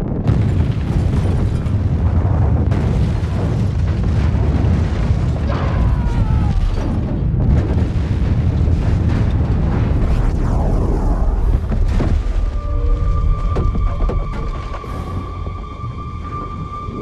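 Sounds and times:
sharp booms: 0:00.0 - 0:12.8
explosion rumble: 0:00.0 - 0:17.0.

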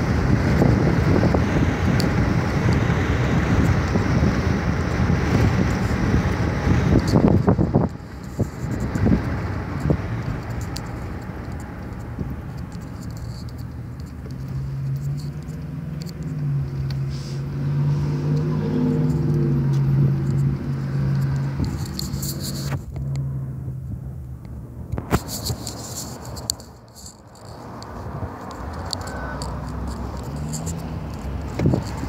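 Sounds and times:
faint clicks: 0:24.4 - 0:32.0.

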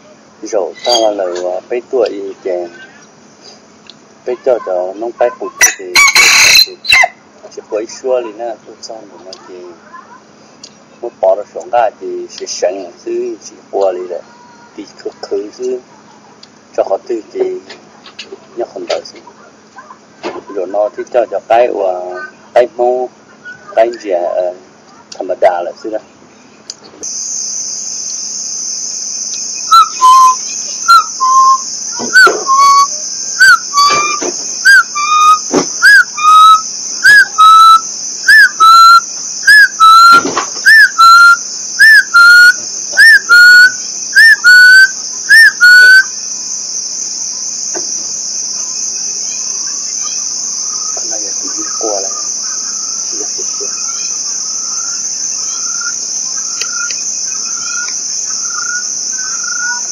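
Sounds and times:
high insect drone: 0:00.0 - 0:59.9
loud whistled call: 0:00.7 - 0:01.3, 0:05.6 - 0:07.2, 0:27.0 - 0:59.9.

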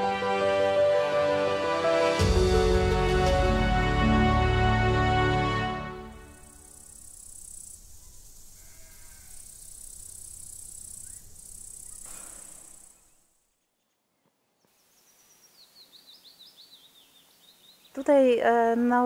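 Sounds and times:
insects chirring in grass: 0:06.2 - 0:13.4
bird descending song: 0:06.4 - 0:18.1.

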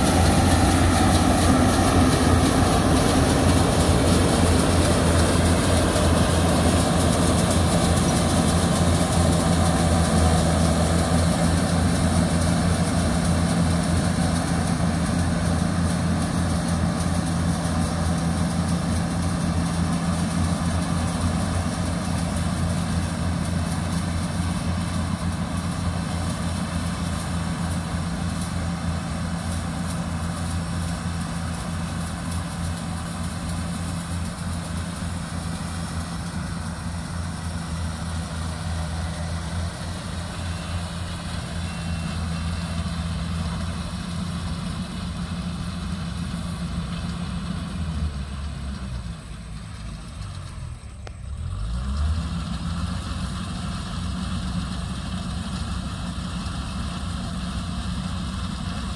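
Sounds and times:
combine harvester engine hum: 0:00.0 - 0:58.9.

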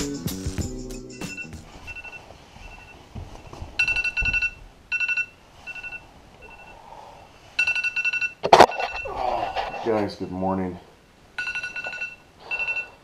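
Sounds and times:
electronic alarm beeping: 0:01.3 - 0:02.9, 0:03.8 - 0:06.8, 0:11.4 - 0:13.0.

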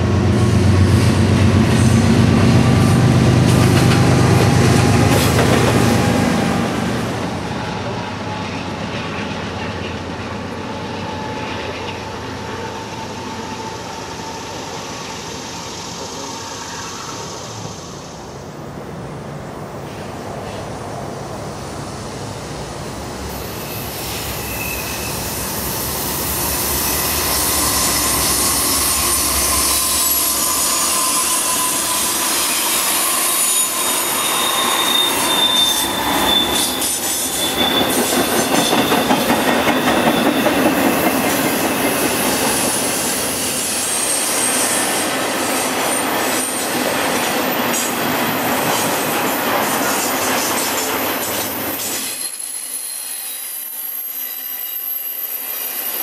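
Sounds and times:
wheels rumbling on rail: 0:00.0 - 0:52.5
train wheels squealing: 0:07.7 - 0:18.4, 0:23.3 - 0:56.0.

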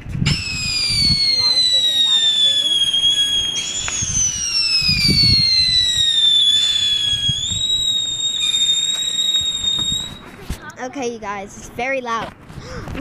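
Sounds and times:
whistling fireworks: 0:00.0 - 0:10.4
low rumbling noise: 0:00.0 - 0:10.5.

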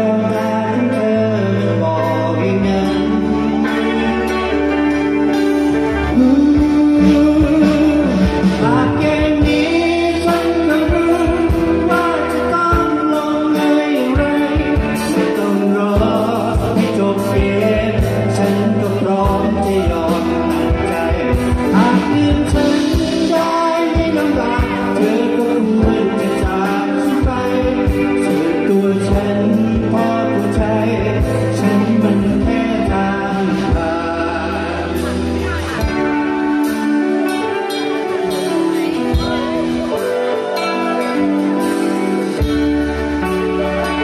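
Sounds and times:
electric guitar: 0:00.0 - 0:44.0
keyboard: 0:00.0 - 0:44.0.

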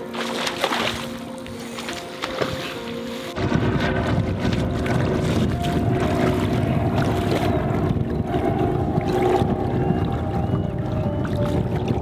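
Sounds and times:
wind buffeting microphone: 0:03.4 - 0:12.0.

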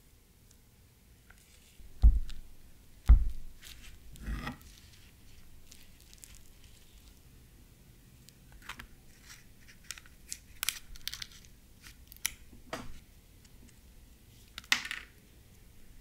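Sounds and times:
heavy knocks: 0:02.0 - 0:02.3, 0:03.1 - 0:03.5.

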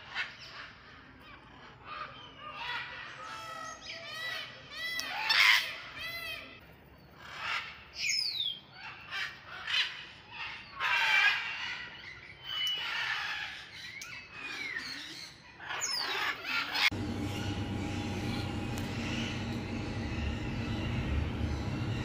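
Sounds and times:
parrots squawking: 0:08.8 - 0:14.9, 0:15.6 - 0:22.0.

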